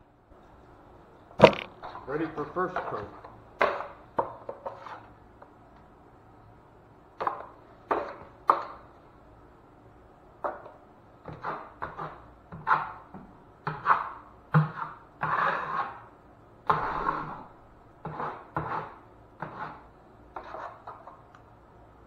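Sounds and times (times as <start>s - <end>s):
knife scraping compound on wall: 1.4s - 5.2s, 7.2s - 8.8s, 10.5s - 21.3s.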